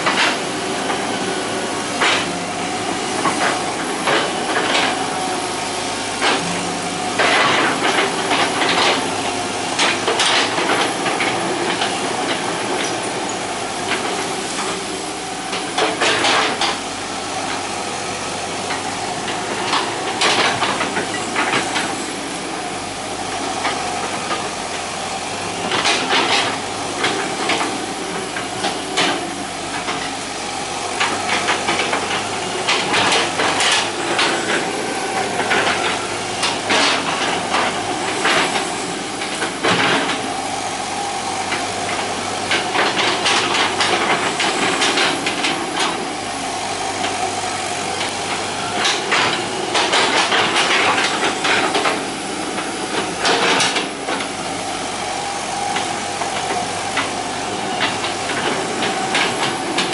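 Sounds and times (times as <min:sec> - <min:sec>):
diesel engine under load: 0:00.0 - 0:59.9.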